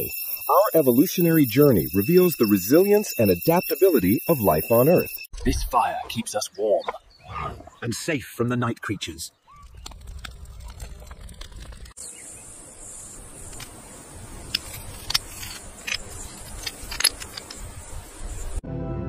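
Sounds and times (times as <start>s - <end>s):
sharp clicks and crackles: 9.6s - 12.0s, 14.4s - 17.8s.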